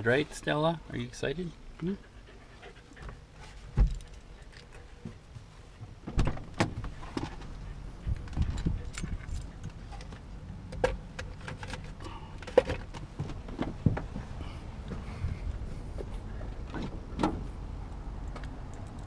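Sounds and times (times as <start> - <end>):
engine and road rumble: 0.0 - 19.0
clicks and rattles in cabin: 8.1 - 14.3.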